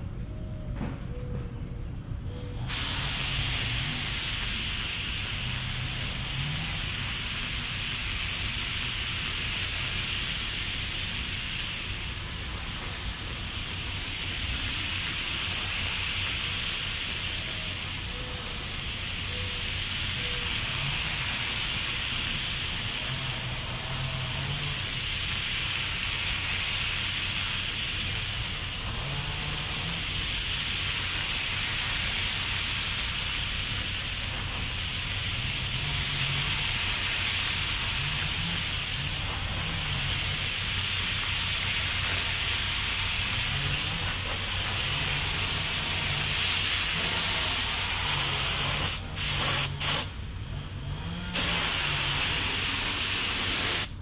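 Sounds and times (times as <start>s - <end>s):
paint spray gun hissing: 2.7s - 50.2s, 51.4s - 54.0s.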